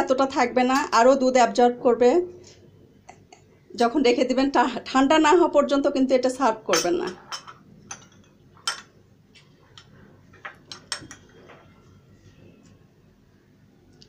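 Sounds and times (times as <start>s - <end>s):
metal spoon clinking against pan: 6.7s - 8.9s, 10.7s - 11.4s.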